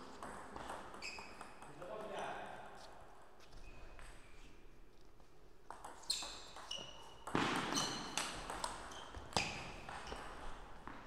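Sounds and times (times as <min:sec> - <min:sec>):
ping-pong ball clicks: 0:05.7 - 0:07.5, 0:08.2 - 0:08.9.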